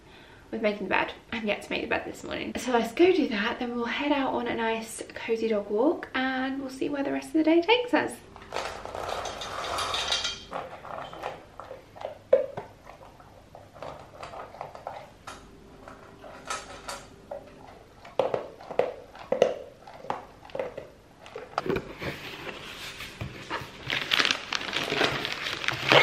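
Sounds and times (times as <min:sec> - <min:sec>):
dog crunching kibble: 0:08.4 - 0:22.6, 0:23.4 - 0:26.0.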